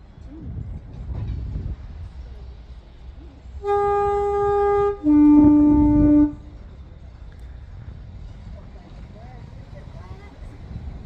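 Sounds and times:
two-tone train horn: 3.6 - 6.7.

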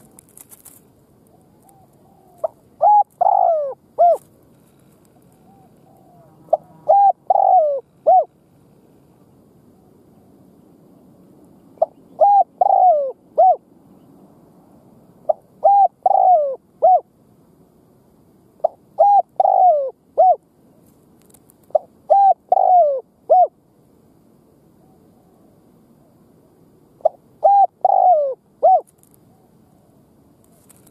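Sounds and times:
dove cooing: 1.3 - 10.3, 11.8 - 14.1, 15.2 - 17.1, 18.6 - 20.4, 21.7 - 23.6, 27.0 - 30.7.

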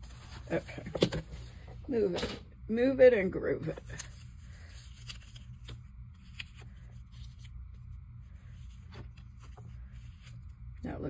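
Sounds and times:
low steady hum: 0.0 - 11.0
paper rustling: 3.6 - 10.6.

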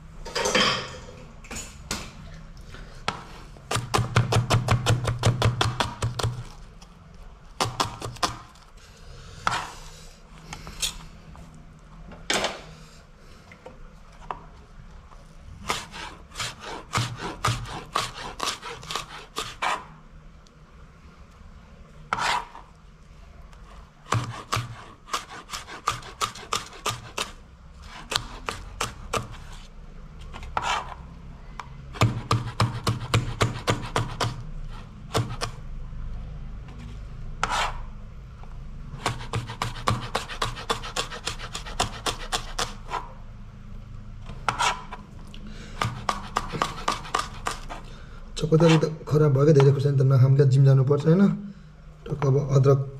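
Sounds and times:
knife chopping on plastic board: 3.1 - 6.6, 7.6 - 8.6, 9.4 - 9.7, 15.6 - 19.9, 22.1 - 22.6, 24.0 - 29.5, 31.9 - 34.4, 35.1 - 35.6, 39.0 - 43.1, 44.4 - 45.0, 45.8 - 47.8.

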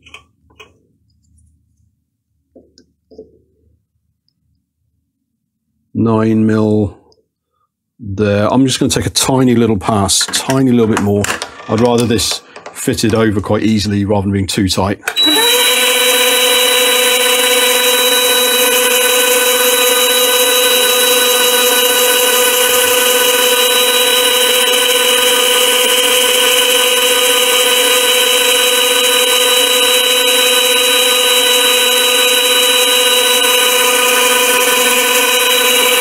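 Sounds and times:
lathe high whine: 15.1 - 36.0.

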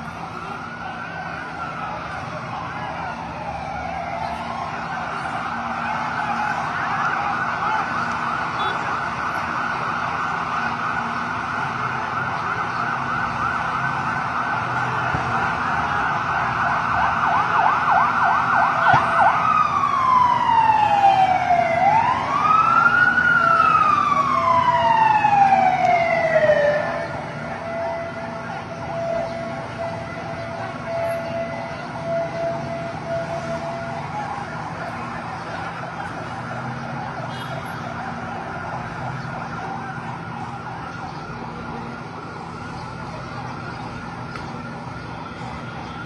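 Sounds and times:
emergency vehicle siren: 0.0 - 46.0.

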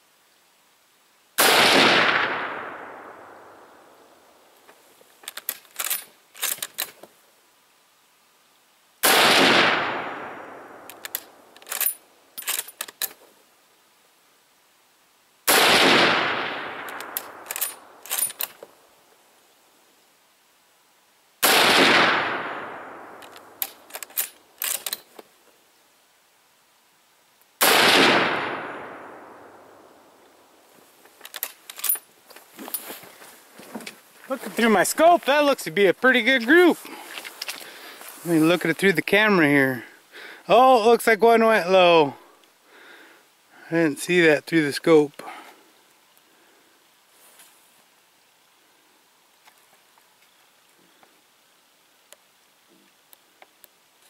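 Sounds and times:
rifle shots: 1.4 - 4.0, 9.0 - 12.0, 15.5 - 18.4, 21.4 - 23.9, 27.6 - 29.8
rifle bolt clacking: 5.3 - 7.0, 10.9 - 13.2, 16.8 - 18.6, 23.2 - 25.1.

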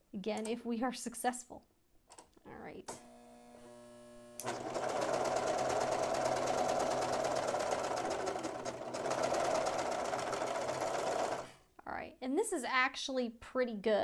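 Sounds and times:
serger sewing machine running: 4.4 - 11.6.

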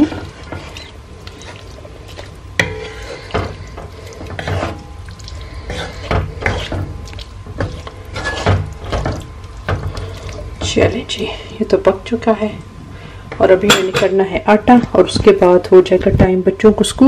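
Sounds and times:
wooden spatula scraping a pan: 0.0 - 11.5.

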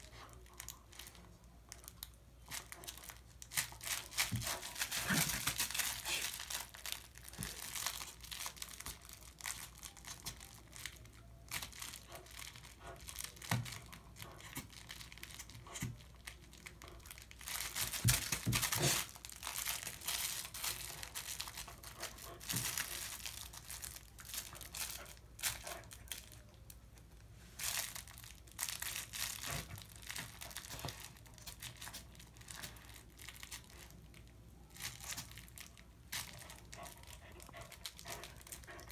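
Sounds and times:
toy material crackling: 0.0 - 27.0, 27.6 - 38.9
dog chewing plush toy: 34.8 - 38.9.

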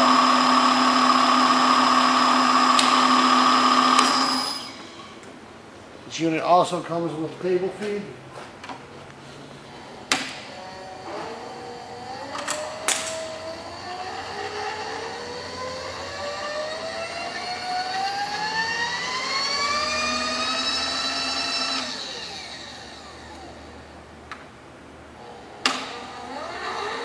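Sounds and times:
motor whining rising in pitch: 0.0 - 5.1, 10.6 - 23.8.

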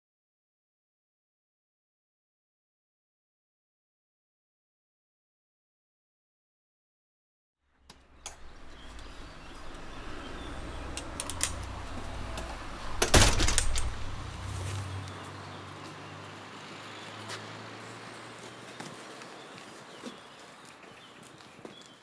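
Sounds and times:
metal door rumbling and rattling: 8.2 - 14.4
metal clanking: 8.3 - 14.3.

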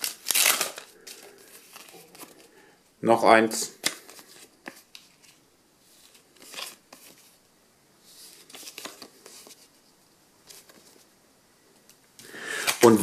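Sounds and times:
paper stickers rustling: 8.2 - 9.8.

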